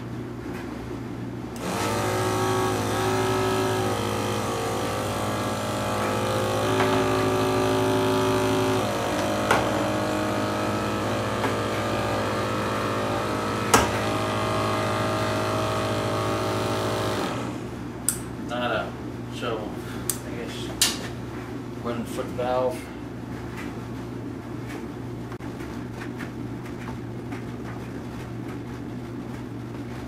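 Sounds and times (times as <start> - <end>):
sprayer pump motor hum: 1.6 - 17.9.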